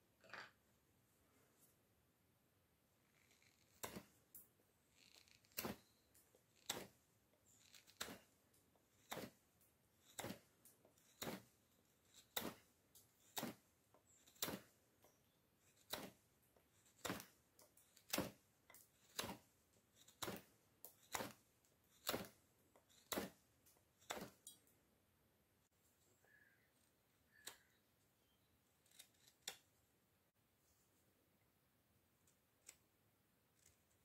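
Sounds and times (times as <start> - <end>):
knife cutting wood: 3.1 - 4.2, 4.9 - 9.4, 10.0 - 24.6, 28.8 - 29.6.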